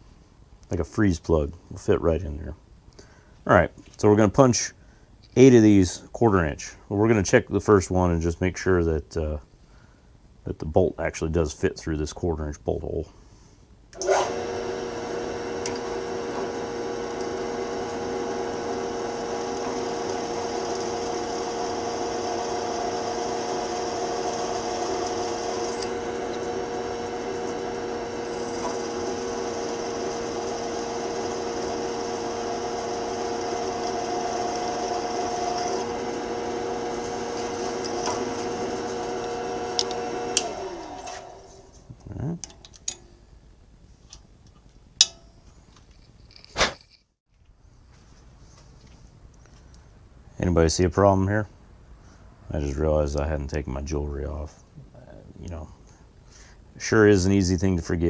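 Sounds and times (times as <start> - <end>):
drill press drilling steel: 14.0 - 41.7.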